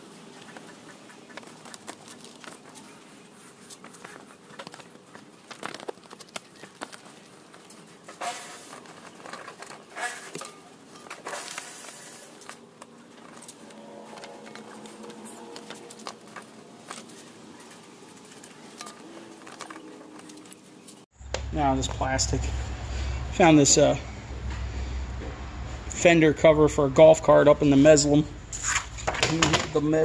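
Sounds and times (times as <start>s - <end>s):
paper rustling and crinkling: 1.3s - 21.1s.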